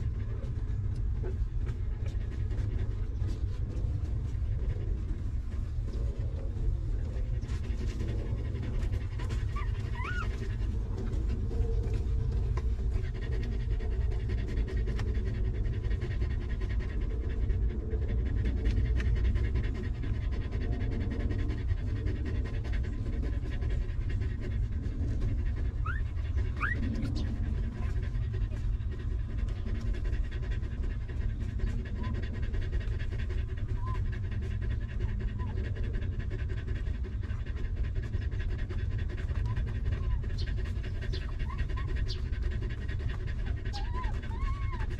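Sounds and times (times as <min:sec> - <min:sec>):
dog panting: 0:00.0 - 0:44.9
low rumble: 0:00.0 - 0:44.9
puppies squeaking: 0:09.5 - 0:10.5, 0:25.8 - 0:26.0, 0:26.6 - 0:27.9.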